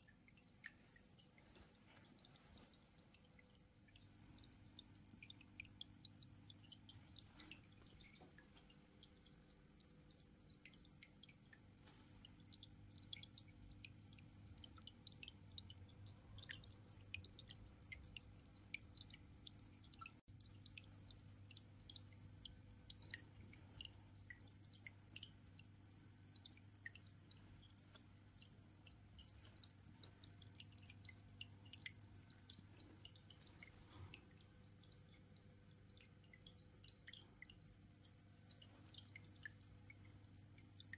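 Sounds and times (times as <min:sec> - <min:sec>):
aquarium drips and bubble pops: 0:00.0 - 0:40.9
low steady hum: 0:00.0 - 0:40.9.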